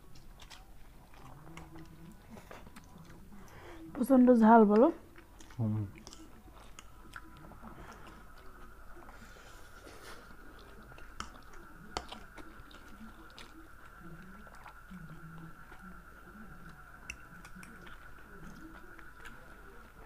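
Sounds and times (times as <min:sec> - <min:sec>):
people chewing and slurping noodles: 0:00.0 - 0:20.0.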